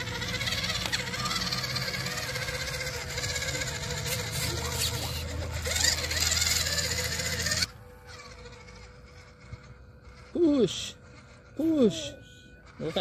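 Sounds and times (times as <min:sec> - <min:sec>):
tyres churning through mud: 0:00.0 - 0:11.9
toy truck motor whirring: 0:00.0 - 0:13.0.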